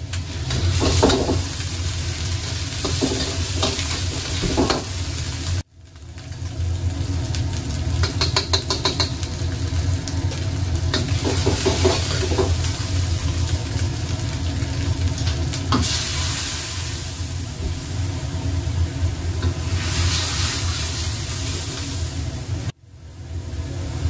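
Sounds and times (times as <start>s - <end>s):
paste sizzling in hot oil: 0.0s - 22.8s
gas burner rushing: 6.4s - 24.0s
pan hissing with steam: 10.9s - 13.2s, 15.7s - 22.8s.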